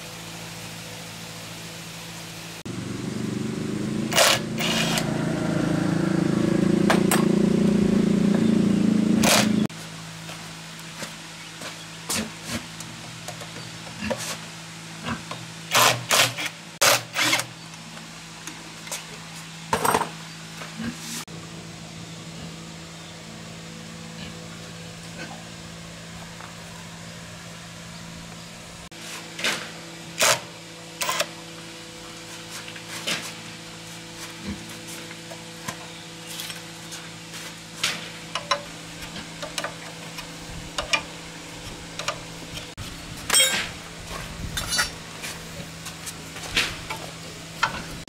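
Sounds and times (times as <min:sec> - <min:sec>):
steady low hum: 0:00.0 - 0:15.7
metal tools clinking: 0:43.3 - 0:43.7, 0:44.6 - 0:45.0.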